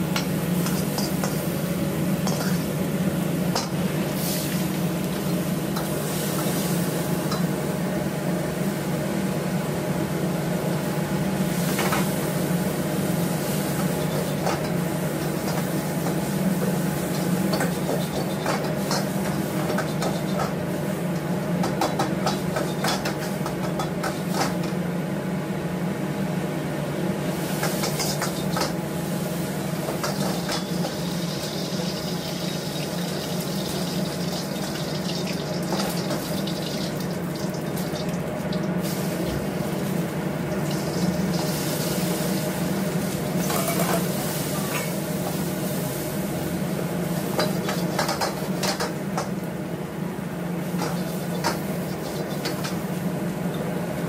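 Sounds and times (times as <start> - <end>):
gas burner humming: 0.0 - 54.0
running water from tap: 31.2 - 38.7.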